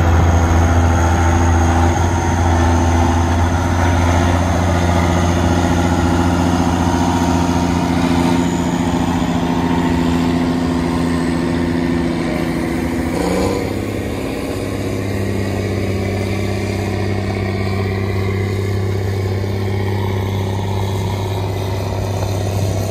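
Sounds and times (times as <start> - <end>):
tractor diesel engine drone: 0.0 - 22.9.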